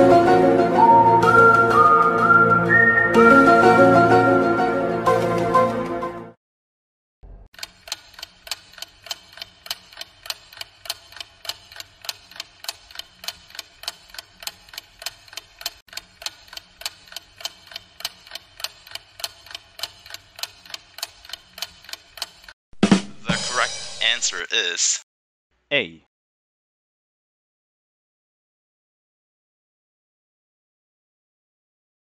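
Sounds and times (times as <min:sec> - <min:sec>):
clock ticking: 0:07.6 - 0:22.6.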